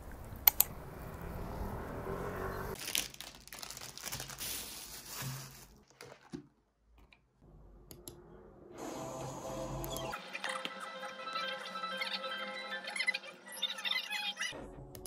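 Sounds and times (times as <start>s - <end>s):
plastic bag crinkling: 2.8s - 6.4s.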